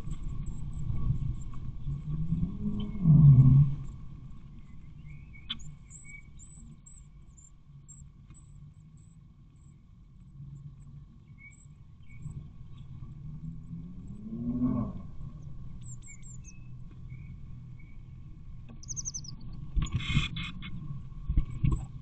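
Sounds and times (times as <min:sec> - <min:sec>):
nestlings chirping: 0:18.8 - 0:19.3.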